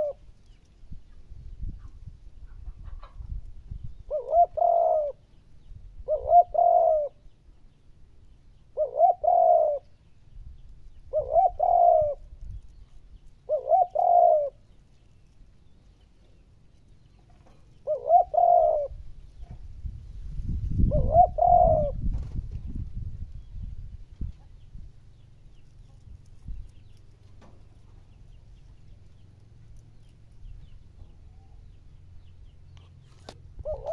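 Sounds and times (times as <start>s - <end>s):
dove cooing: 0.0s - 0.2s, 4.0s - 5.2s, 6.0s - 7.2s, 8.7s - 9.9s, 11.1s - 12.4s, 13.4s - 14.7s, 17.4s - 19.6s, 20.7s - 22.1s, 33.2s - 33.9s.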